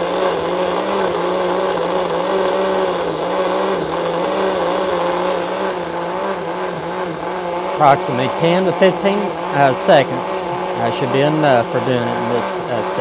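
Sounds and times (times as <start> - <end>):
blender running at high speed: 0.0 - 13.0.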